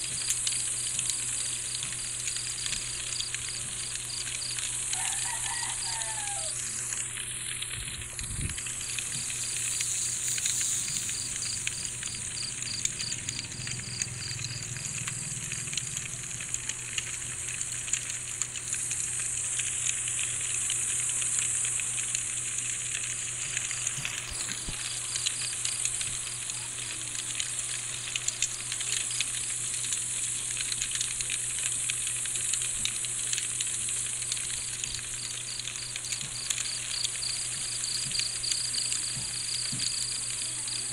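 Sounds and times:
crickets chirping: 0.0 - 16.1, 34.4 - 40.9
night insects hissing: 0.0 - 16.1, 18.6 - 22.5, 23.5 - 40.9
campfire crackling: 0.0 - 40.9.

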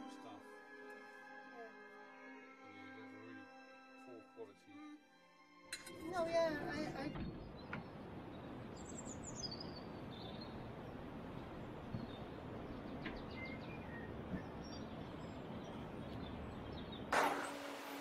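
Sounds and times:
outdoor background noise: 5.7 - 18.0
bird chirping: 7.0 - 17.1.

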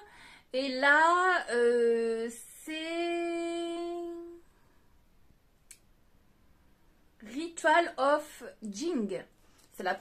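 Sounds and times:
woman speaking: 0.6 - 4.1, 7.2 - 10.0.

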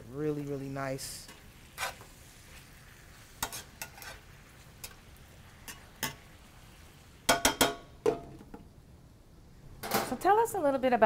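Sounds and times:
vegetables sizzling in a skillet: 0.0 - 8.1
metal utensil clicking on pan: 3.4 - 4.2, 5.7 - 6.2
pans clattering: 7.3 - 8.6.

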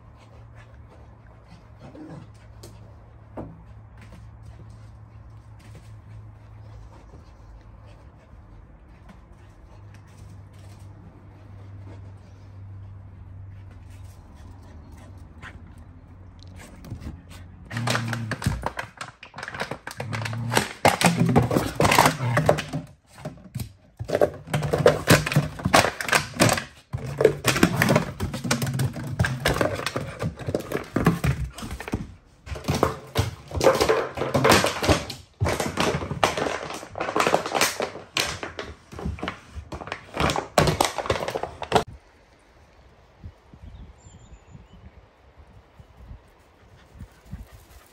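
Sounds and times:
puppy growling: 17.6 - 22.8.

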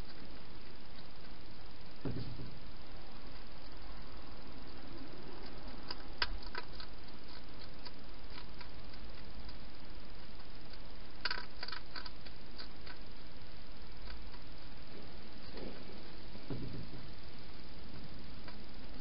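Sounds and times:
steady hiss: 0.0 - 19.0
hedgehog eating clicks and crunches: 4.6 - 14.8.

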